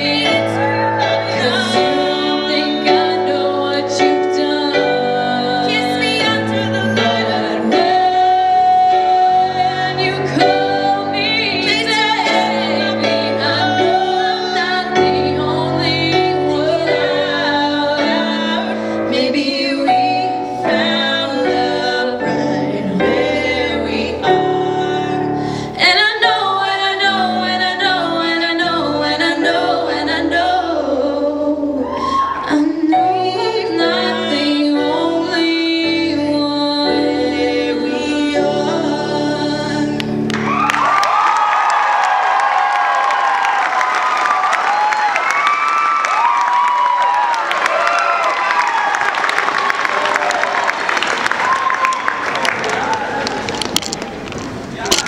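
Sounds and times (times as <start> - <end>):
women singing a duet: 0.0 - 40.3
digital piano chords: 0.0 - 40.7.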